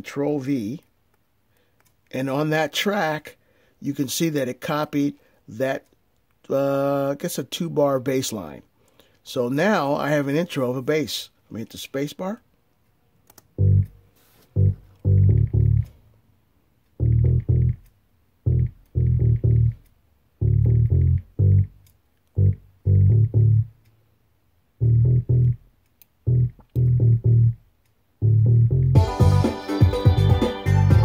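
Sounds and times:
plucked bass notes: 13.5s - 16.0s, 17.0s - 23.8s, 24.8s - 27.6s, 28.2s - 31.0s
full instrumental arrangement: 13.6s - 16.0s, 28.2s - 31.0s.

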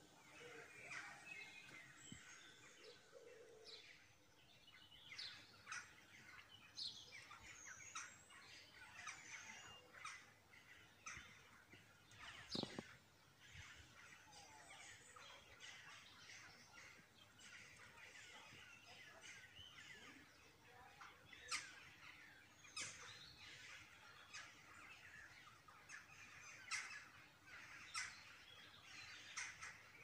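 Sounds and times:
small birds twittering: 0.0s - 30.0s.

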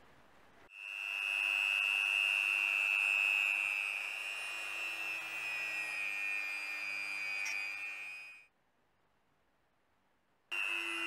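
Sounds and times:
rotary tool high whine: 0.7s - 8.5s, 10.5s - 11.0s.

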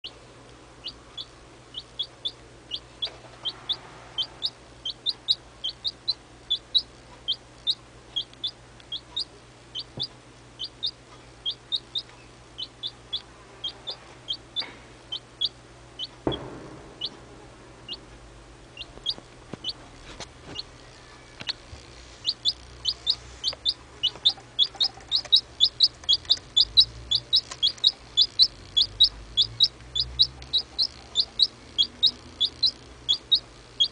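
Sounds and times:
chick peeping: 0.0s - 0.2s, 0.8s - 18.1s, 18.7s - 33.9s
sharp knock: 16.2s - 17.2s.

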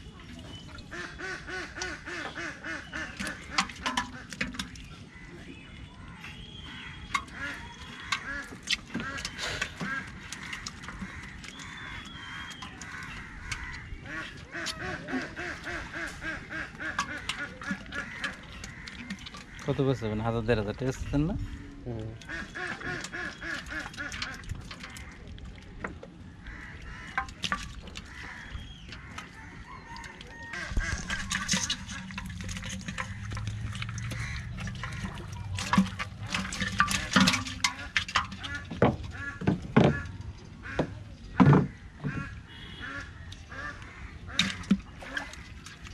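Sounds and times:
fish flapping in water: 2.7s - 5.3s, 7.0s - 19.8s, 22.2s - 25.8s, 26.5s - 40.4s, 42.5s - 45.9s
fast animal calls: 28.0s - 40.2s
hand rummaging through fish: 29.0s - 40.1s
scattered clicks and knocks: 30.8s - 42.3s.

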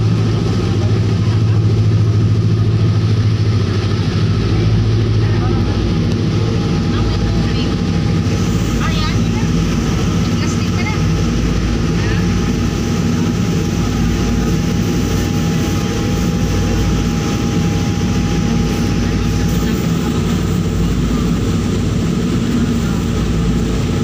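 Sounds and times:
ferry engines droning: 0.0s - 24.0s.

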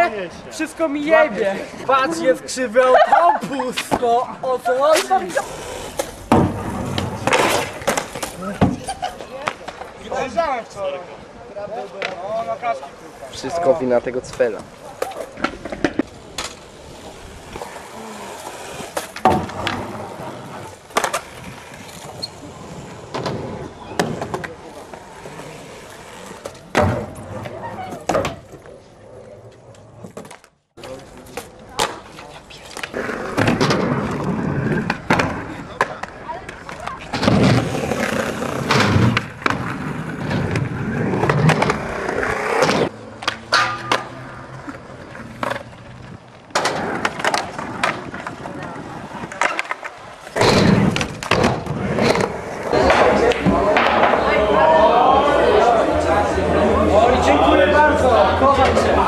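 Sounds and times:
skateboard wheels rolling on concrete: 0.0s - 59.0s
skateboard clacks popping and landing: 14.3s - 16.6s, 18.9s - 20.0s, 26.4s - 28.7s, 30.0s - 45.8s, 46.5s - 54.2s
skateboard grinding on metal rail: 37.1s - 45.8s.

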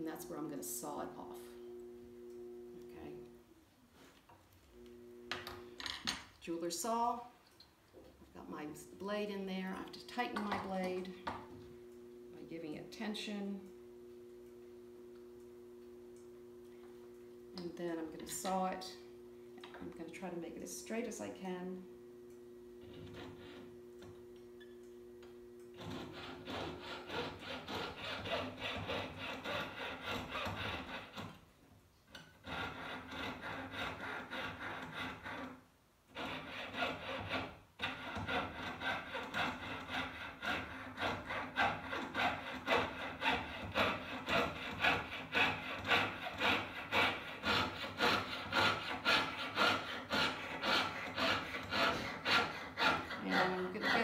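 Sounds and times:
saw cutting through metal tubing: 25.8s - 31.4s, 32.2s - 54.0s.

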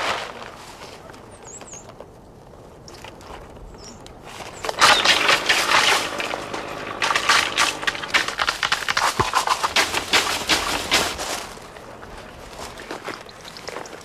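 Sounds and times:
leaves rustling with sharp cracks: 0.0s - 14.0s
sticks beating olive branches: 4.6s - 14.0s.

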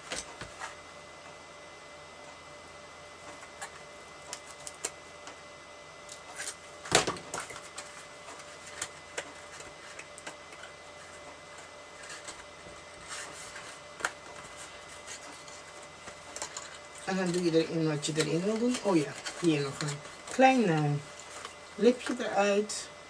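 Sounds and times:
card stock rustling: 6.1s - 22.6s.

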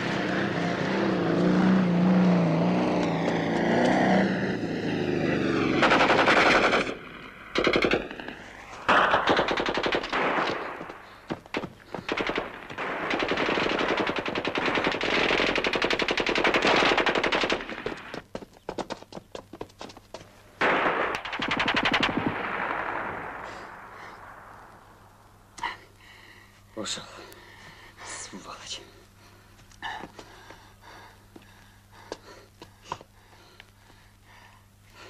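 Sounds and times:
automatic gunfire: 5.8s - 18.2s, 20.6s - 24.4s.

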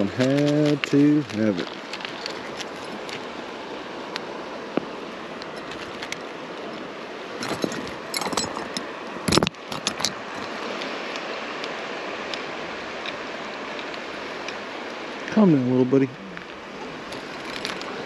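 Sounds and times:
creek water running: 0.0s - 18.0s.

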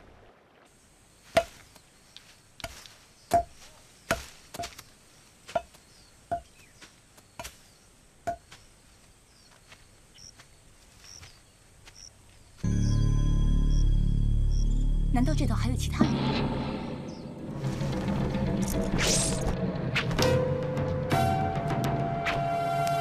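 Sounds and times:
axe chopping wood: 1.3s - 1.6s, 2.6s - 4.8s
faint bird chirps: 4.8s - 8.0s.

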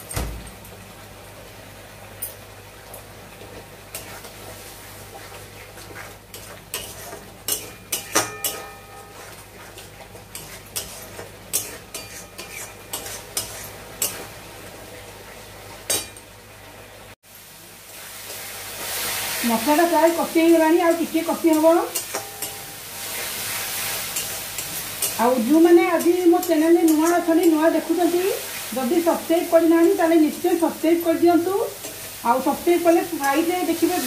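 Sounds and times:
food sizzling: 0.0s - 34.0s
metal spatula scraping a pan: 5.1s - 14.3s.

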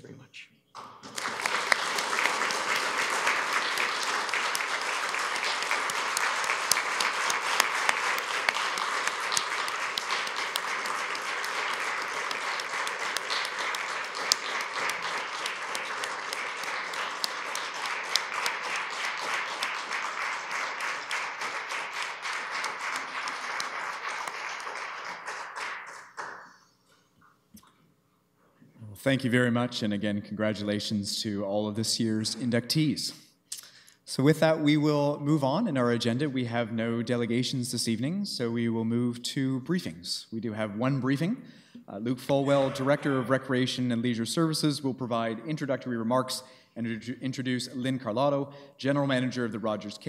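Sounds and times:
crowd applauding: 0.8s - 26.7s, 42.3s - 44.0s.

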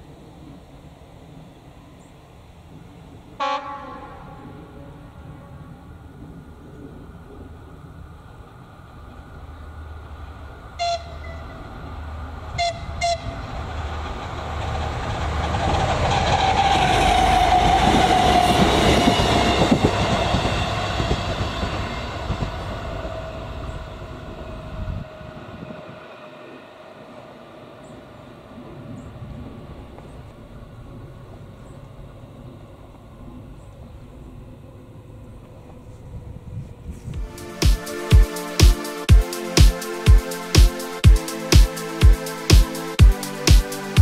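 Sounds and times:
train whine: 0.0s - 44.0s
train horn blasts: 3.4s - 6.1s, 10.8s - 11.8s, 12.5s - 13.5s.

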